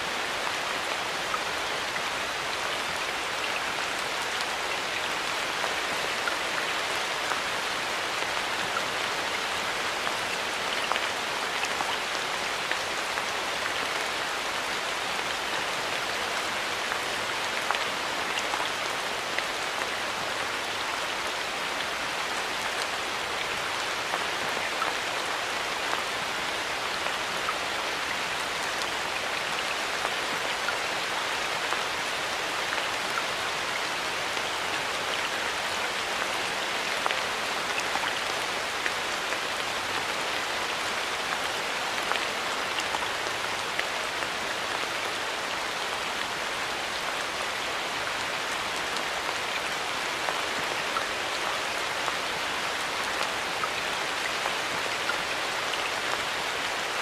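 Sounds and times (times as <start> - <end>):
steady rain hiss: 0.0 - 57.0.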